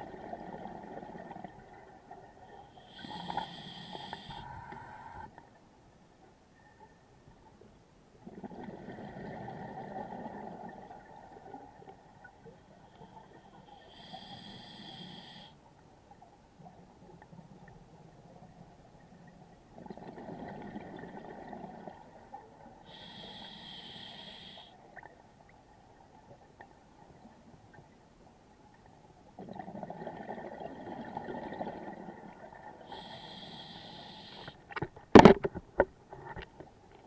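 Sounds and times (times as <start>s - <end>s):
diver inhaling through regulator: 2.8s - 5.3s, 13.7s - 15.6s, 22.9s - 24.8s, 32.9s - 34.6s
exhaled bubbles hissing: 32.8s - 34.6s.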